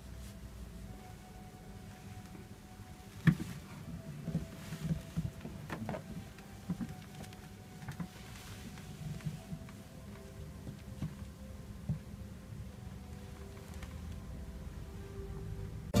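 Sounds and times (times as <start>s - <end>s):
towel rustling and thudding: 3.0s - 11.2s.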